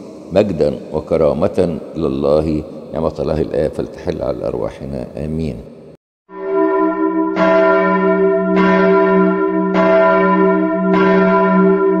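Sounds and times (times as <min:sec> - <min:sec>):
church bell tolling: 0:06.3 - 0:12.0.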